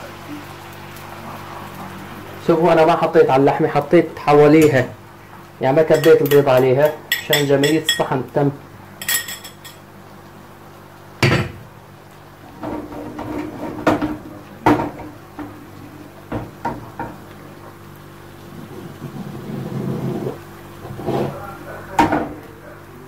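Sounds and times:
frying pan scraping on stove grate: 0:12.4 - 0:16.6, 0:18.5 - 0:21.6.

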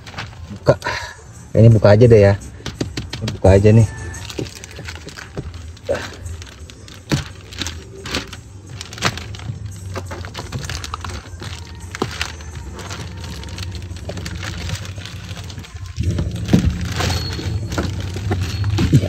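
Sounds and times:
plastic film crinkling and tearing: 0:02.6 - 0:19.0.

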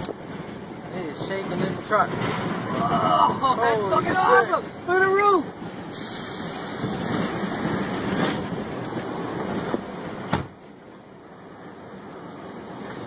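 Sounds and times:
wind buffeting a truck: 0:00.0 - 0:13.0
knocks on truck cab: 0:10.3 - 0:10.6.

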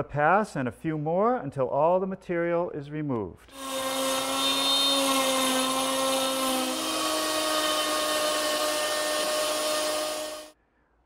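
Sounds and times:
router high whine: 0:03.5 - 0:10.6.

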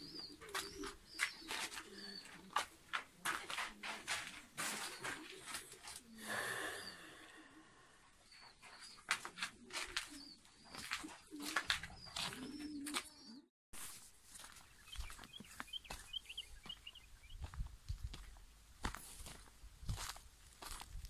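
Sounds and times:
birds cooing: 0:00.0 - 0:13.4
small high bird chirps: 0:14.5 - 0:17.6.

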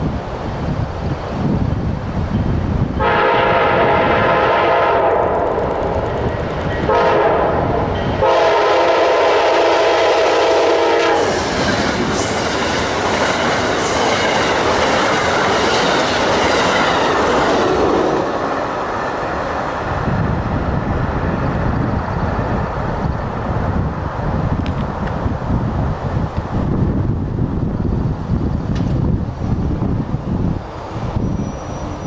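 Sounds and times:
train rushing past: 0:00.0 - 0:32.0
train horn blast: 0:03.0 - 0:05.6, 0:06.8 - 0:11.5
wheels clacking over rail joints: 0:11.3 - 0:19.9.

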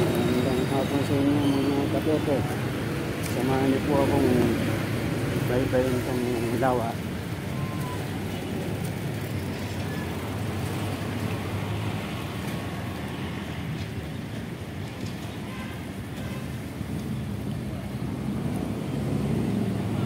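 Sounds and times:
road noise: 0:00.0 - 0:20.0
vehicle engine hum: 0:00.0 - 0:20.0.

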